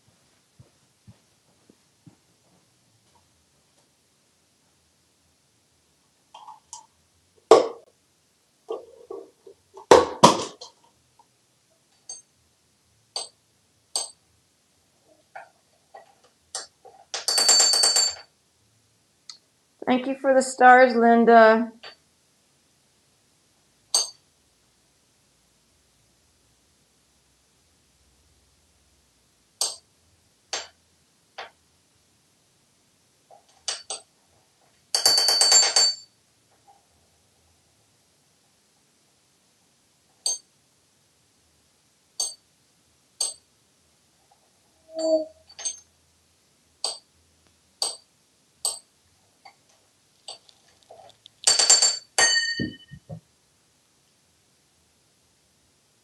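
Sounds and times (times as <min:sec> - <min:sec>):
metal spoon tapping on marble: 0:23.9 - 0:24.2, 0:42.2 - 0:42.4
metal spoon clinking on stone: 0:24.0 - 0:24.2, 0:42.2 - 0:42.4, 0:51.4 - 0:53.0
spoon rattling clatter: 0:50.3 - 0:52.8.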